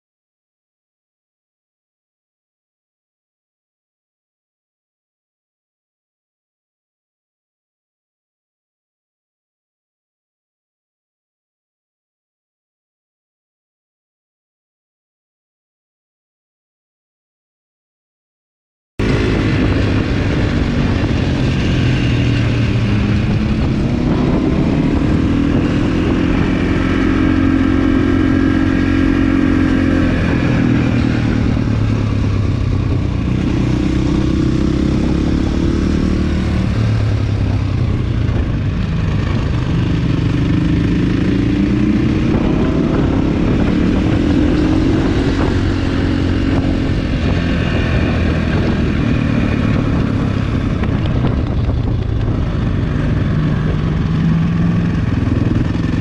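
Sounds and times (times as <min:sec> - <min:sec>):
motorcycle engine revving: 0:19.0 - 0:56.0.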